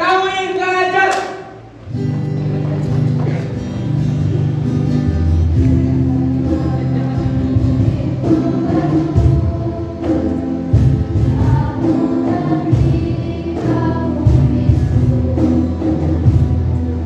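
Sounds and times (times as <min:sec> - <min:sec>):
choir singing: 0:05.2 - 0:17.0.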